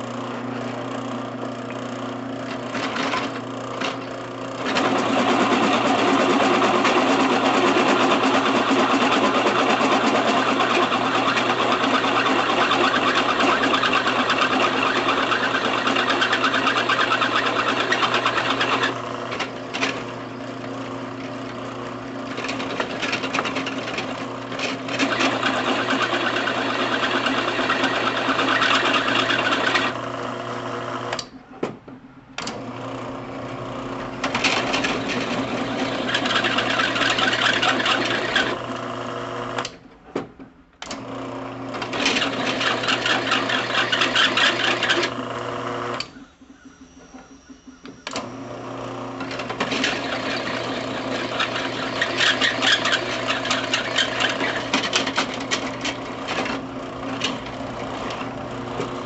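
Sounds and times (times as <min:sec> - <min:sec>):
drill press motor hum: 0:00.0 - 0:59.0
drill bit cutting steel: 0:07.0 - 0:20.4, 0:22.5 - 0:30.2, 0:35.0 - 0:39.7, 0:41.8 - 0:46.2, 0:47.0 - 0:56.4.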